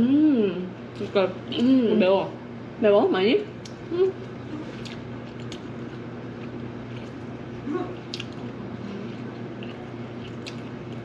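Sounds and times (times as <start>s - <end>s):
low room hum: 0.0s - 11.0s
wet chewing: 3.6s - 11.0s.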